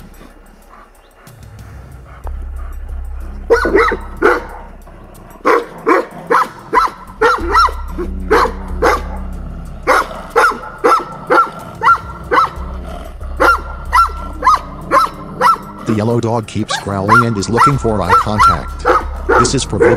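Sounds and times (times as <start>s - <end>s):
large dog barking: 3.4s - 15.9s, 16.7s - 19.9s
dog growling low: 7.0s - 15.9s.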